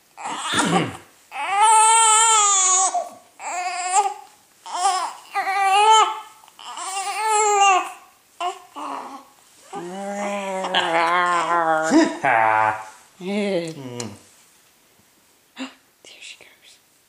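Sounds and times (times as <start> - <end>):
baby fussing cries: 0.2 - 11.9.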